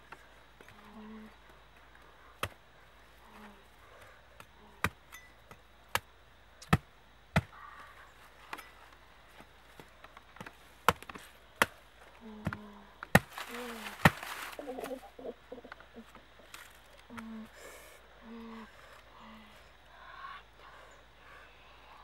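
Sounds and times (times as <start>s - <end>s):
cleaver chopping fruit husks: 2.4s - 2.6s, 4.0s - 7.6s, 9.8s - 15.0s.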